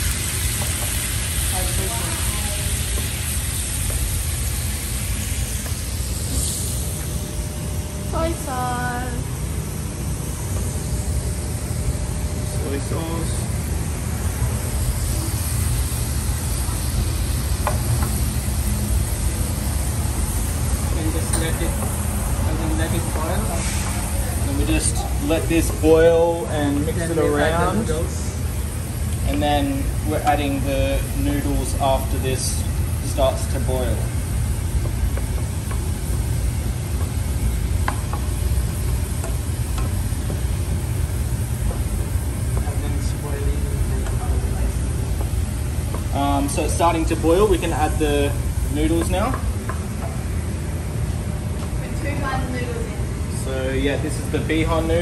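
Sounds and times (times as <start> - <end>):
stock hissing in a frying pan: 0.0 - 7.2, 14.1 - 49.3.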